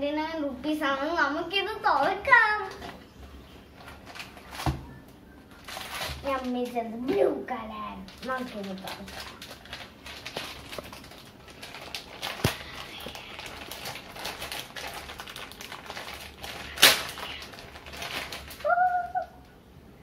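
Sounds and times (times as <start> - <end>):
plastic bag crinkling: 3.7 - 4.8, 5.5 - 7.1, 7.9 - 19.2.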